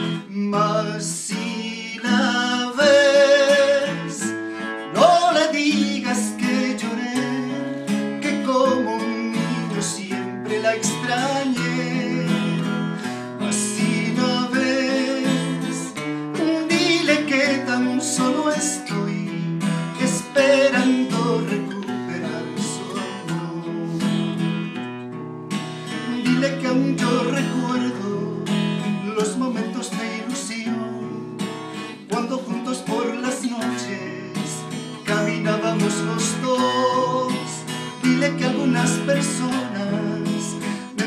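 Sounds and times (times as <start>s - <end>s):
acoustic guitar strumming: 0.0s - 41.0s.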